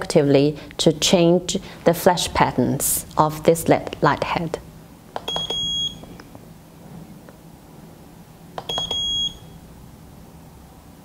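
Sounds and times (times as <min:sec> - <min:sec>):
short high electronic beep: 0:08.7 - 0:09.6.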